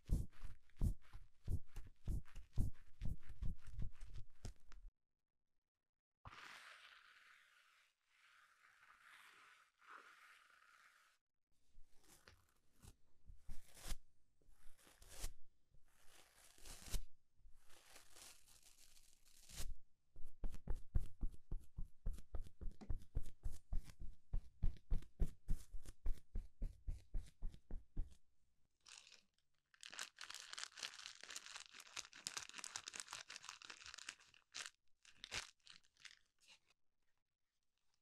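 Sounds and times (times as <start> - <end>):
toilet brush bristles scratching: 6.3 - 11.2.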